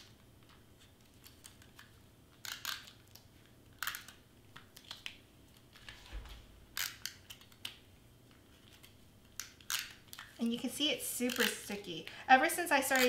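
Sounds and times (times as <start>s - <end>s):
tape runner laying adhesive tape: 1.2s - 5.1s, 5.7s - 7.8s, 8.6s - 10.3s.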